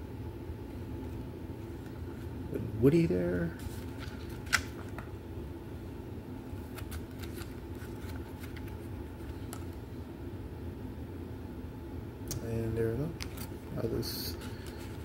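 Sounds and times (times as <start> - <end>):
low room hum: 0.0 - 15.0
paper rustling and ticking: 3.6 - 5.1, 6.6 - 9.7, 14.3 - 15.0
card snapping: 4.0 - 5.0.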